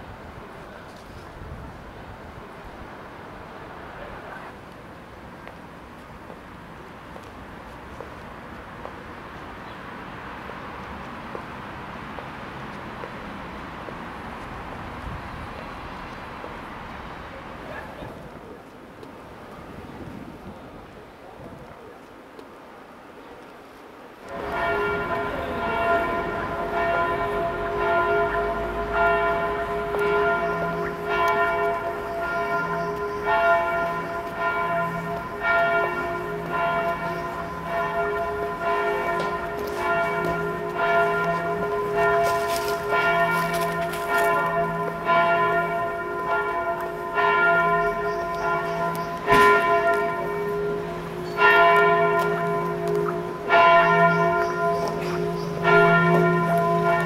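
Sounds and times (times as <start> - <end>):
bells ringing in a peal: 24.3 - 57.0.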